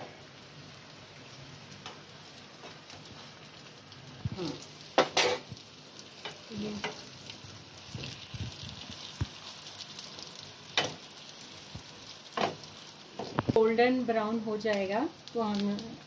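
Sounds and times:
spring rolls sizzling in hot oil: 0:00.0 - 0:16.0
metal spoon scraping a pan: 0:05.0 - 0:05.5.

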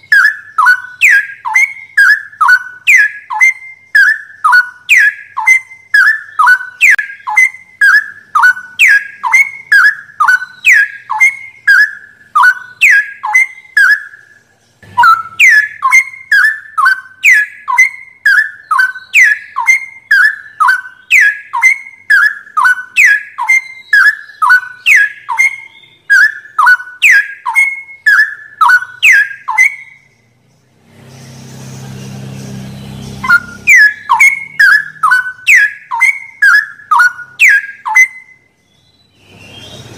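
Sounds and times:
bird singing whistled notes: 0:00.0 - 0:39.9.

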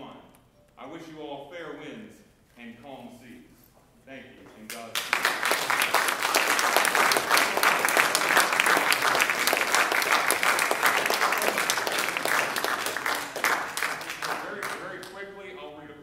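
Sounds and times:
audience applauding: 0:04.7 - 0:15.2.

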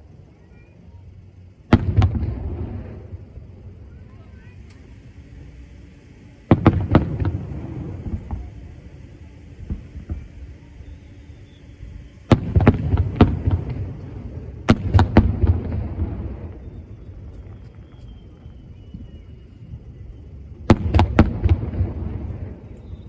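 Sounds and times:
firework shells exploding: 0:01.6 - 0:03.8, 0:06.5 - 0:08.9, 0:12.2 - 0:19.1, 0:20.6 - 0:23.0.

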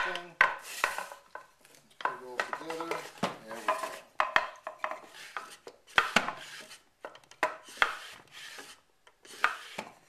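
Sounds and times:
sharp wooden knocks: 0:00.0 - 0:06.4
wood sliding on wood: 0:00.0 - 0:10.0.

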